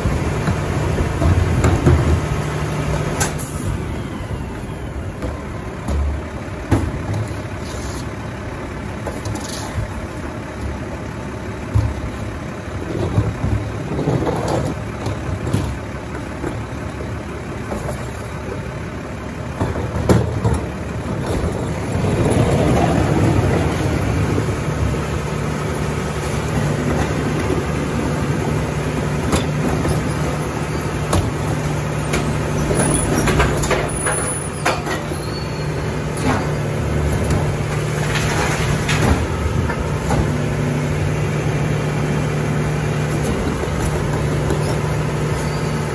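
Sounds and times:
garbage truck engine running: 0.0 - 45.9
knocks and clatter: 32.1 - 35.1.

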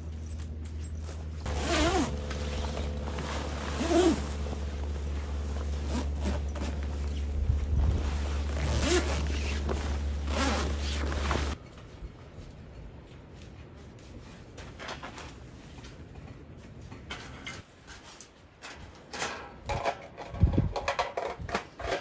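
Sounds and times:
steady low hum: 0.0 - 11.6
tent zippers being pulled: 1.0 - 11.6.

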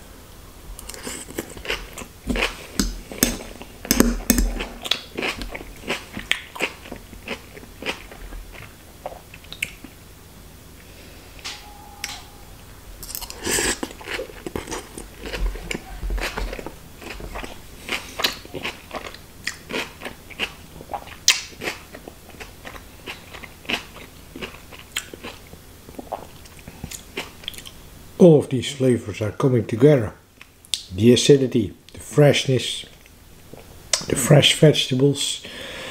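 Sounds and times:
person chewing crunchy food: 0.8 - 10.0, 13.0 - 27.8.

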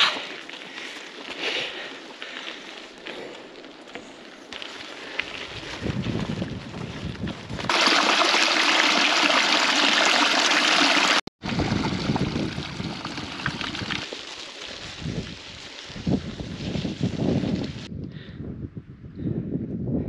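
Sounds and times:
wind buffeting microphone: 5.3 - 7.7, 11.4 - 14.0, 14.8 - 20.0
stream water rushing: 7.7 - 14.0.

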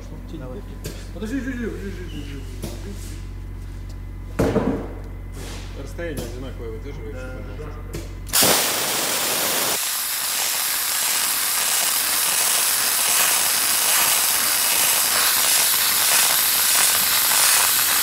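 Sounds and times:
dry-ice blasting jet hiss: 8.3 - 18.0.

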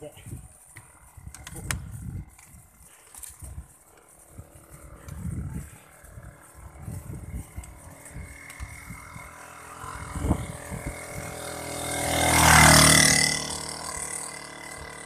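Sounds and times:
low irregular thumps: 0.0 - 12.0
small motorcycle passing: 0.0 - 15.0.

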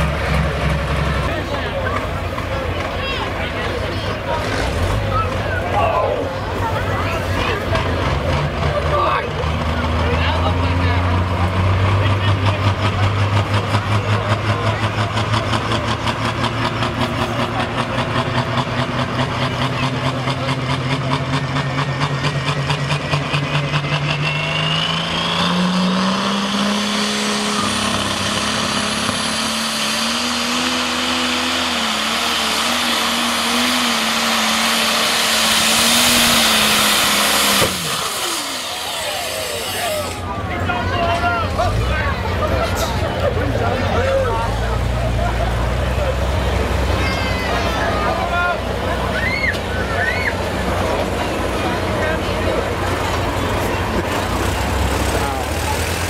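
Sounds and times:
diesel engine idling and revving: 0.0 - 56.0
high turbo whine: 18.7 - 42.0.

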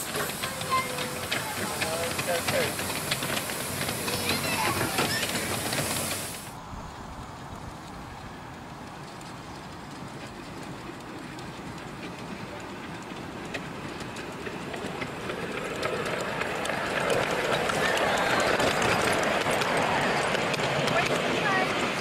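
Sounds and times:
steam hissing: 0.0 - 6.6, 11.6 - 22.0
faint rail clicks: 0.0 - 22.0
miniature train rumbling on track: 0.0 - 22.0.

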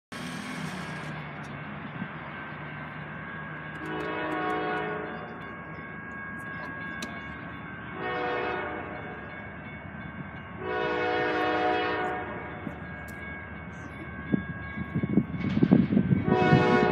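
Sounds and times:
train rumble: 0.1 - 16.9
locomotive horn blasts: 3.8 - 5.3, 8.0 - 9.1, 10.6 - 12.6, 16.2 - 16.9.

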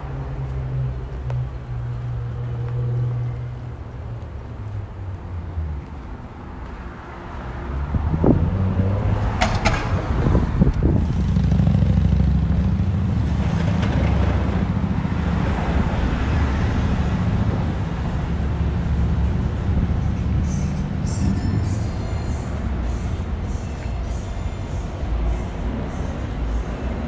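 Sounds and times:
traffic passing: 0.0 - 27.0.

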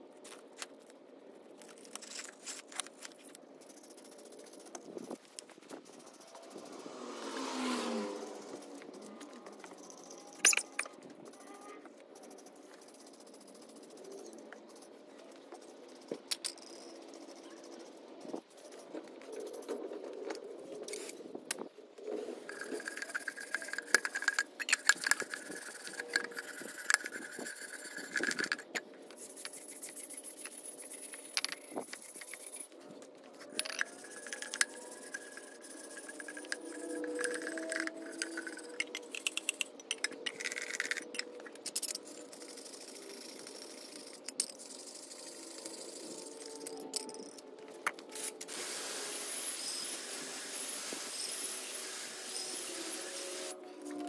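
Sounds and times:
metal parts scraping and rattling: 0.2 - 7.0, 8.0 - 54.0
steady high tone: 33.5 - 39.6, 45.3 - 54.0.

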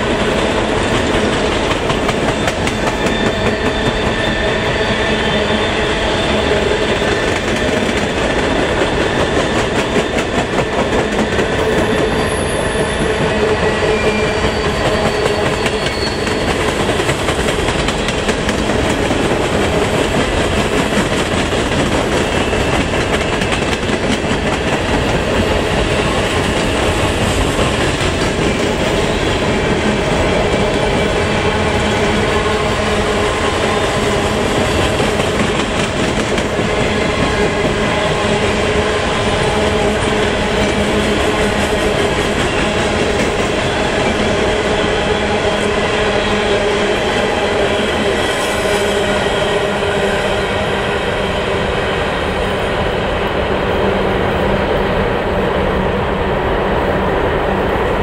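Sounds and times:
train wheels clattering over rail joints: 0.0 - 4.9, 14.4 - 31.2
faint wheel squeal: 13.7 - 16.5.

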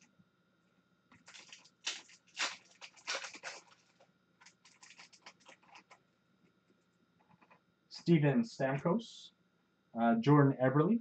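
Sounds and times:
foil wrapper tearing: 1.1 - 6.0
wrapper crackling: 1.1 - 6.0.

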